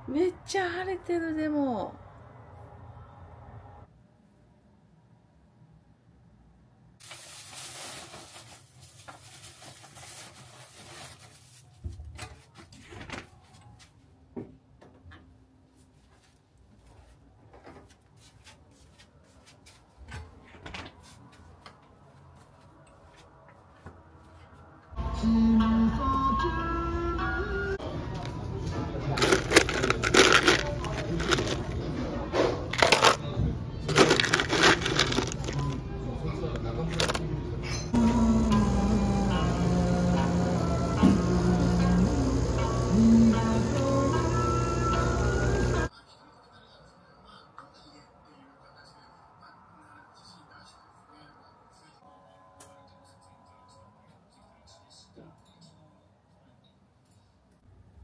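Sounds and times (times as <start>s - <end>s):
plastic bag crinkling: 7.0s - 11.6s, 29.2s - 31.8s, 32.7s - 33.2s, 33.9s - 35.8s, 36.9s - 37.2s
ice cubes clattering and crunching: 29.2s - 31.8s, 32.7s - 33.2s, 33.9s - 35.8s, 36.9s - 37.2s.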